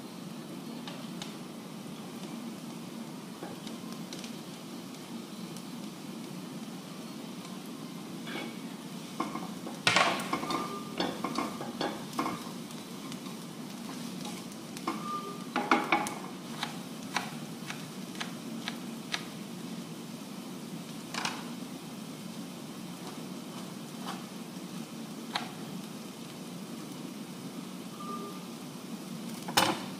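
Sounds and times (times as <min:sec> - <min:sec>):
vegetables sizzling in a pan: 0:00.0 - 0:29.9
spatula scraping a pan: 0:08.2 - 0:09.6.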